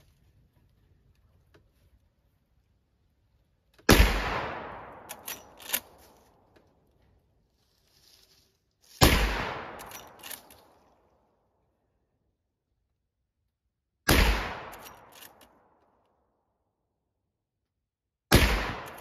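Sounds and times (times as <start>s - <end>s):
rifle shots: 3.9s - 6.1s, 9.0s - 10.4s, 14.1s - 15.6s, 18.3s - 19.0s
rifle lever metallic clicks: 4.9s - 6.8s, 9.7s - 11.0s, 14.6s - 16.1s.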